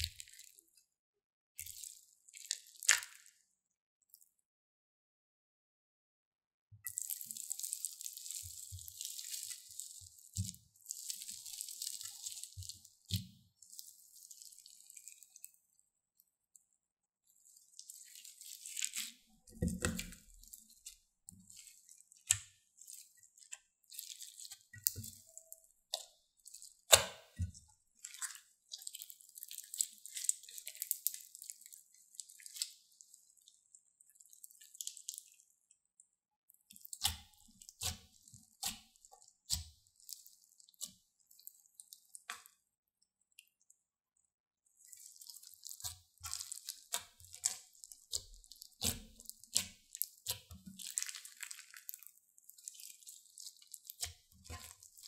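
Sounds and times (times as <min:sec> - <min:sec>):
slime squishing: 0:00.0 - 0:00.7, 0:01.6 - 0:03.4, 0:06.9 - 0:15.8, 0:17.3 - 0:35.5, 0:36.6 - 0:42.6, 0:44.7 - 0:55.0.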